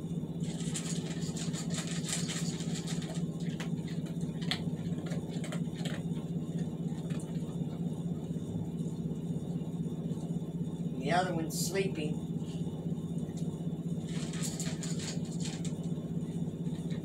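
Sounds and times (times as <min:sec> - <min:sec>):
steady low hum: 0:00.0 - 0:17.0
dog crunching and licking food: 0:00.4 - 0:07.8, 0:14.1 - 0:15.8.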